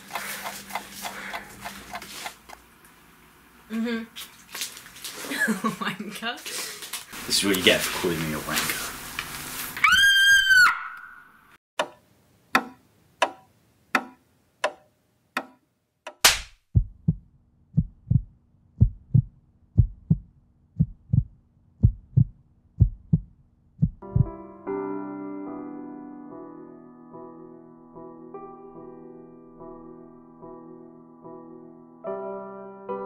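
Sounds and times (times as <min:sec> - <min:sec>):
heartbeat-like low thumps: 0:16.7 - 0:24.4.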